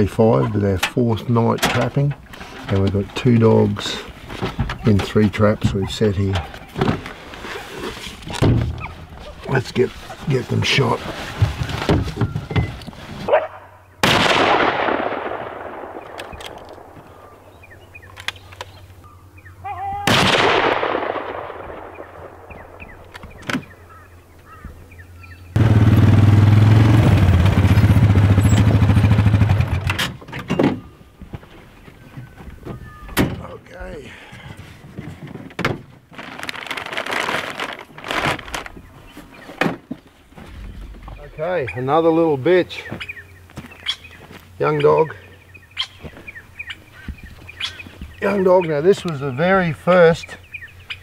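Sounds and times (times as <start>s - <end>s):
rifle shot echoing: 14.0s - 17.4s, 20.1s - 23.1s.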